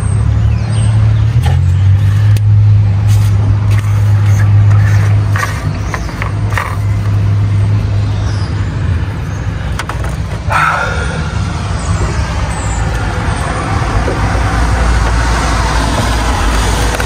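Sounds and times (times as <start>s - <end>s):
street traffic: 0.0s - 17.0s
vehicle engine humming: 0.0s - 17.0s
loud noise: 8.5s - 17.0s.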